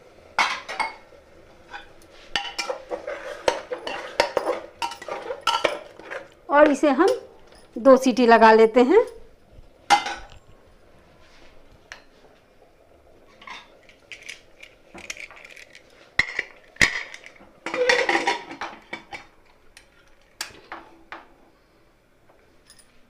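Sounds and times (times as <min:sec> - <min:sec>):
metal lid clattering: 0:01.7 - 0:06.2, 0:15.0 - 0:19.3.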